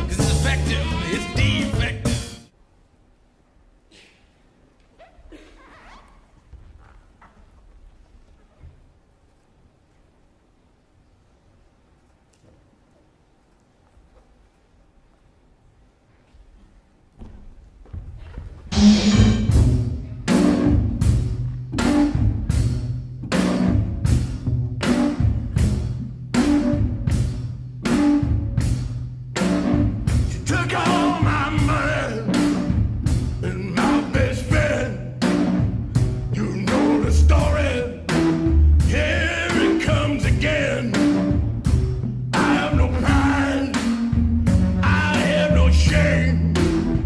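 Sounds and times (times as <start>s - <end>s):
person singing: 0.0s - 2.3s, 30.3s - 32.6s, 33.4s - 35.1s, 36.3s - 38.2s, 38.8s - 41.3s, 42.4s - 44.1s, 44.8s - 46.7s
heavy drum beat: 0.0s - 2.4s, 18.7s - 47.0s.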